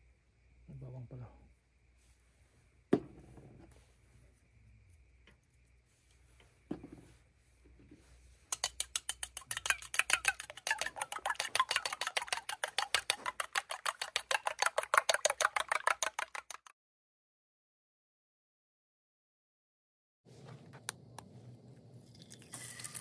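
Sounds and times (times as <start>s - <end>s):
fork beating in metal bowl: 8.5s - 16.7s.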